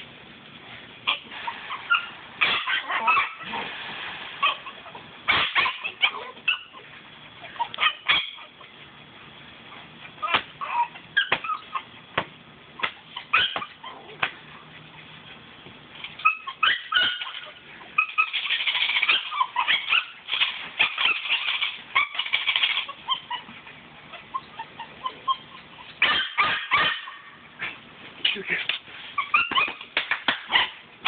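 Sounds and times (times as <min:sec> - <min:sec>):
puppy making small dog sounds: 0:09.7 - 0:11.9, 0:16.1 - 0:27.1
sharp snaps and scuffs: 0:12.2 - 0:13.0.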